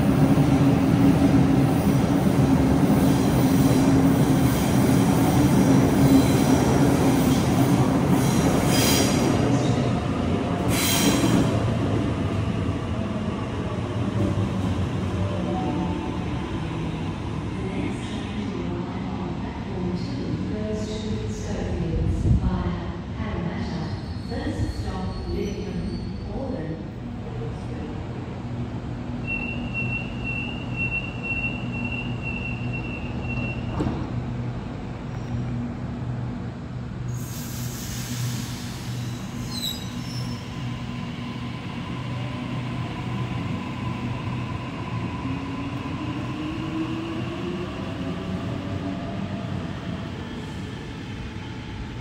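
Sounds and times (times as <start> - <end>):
door-closing warning beeps: 29.3 - 33.8
air hiss: 37.1 - 39.7.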